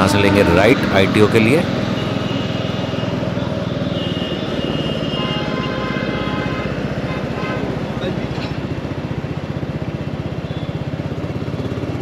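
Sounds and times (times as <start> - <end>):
motorcycle engine running: 7.8 - 12.0.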